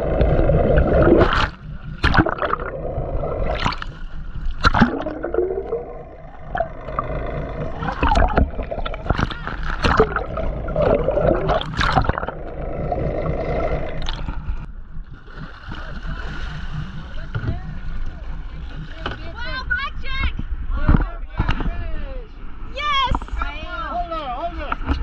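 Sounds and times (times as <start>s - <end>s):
underwater water gurgling and sloshing: 0.0s - 21.7s
steady low rumble: 0.0s - 22.7s
sharp knocks and clicks: 14.0s - 19.4s.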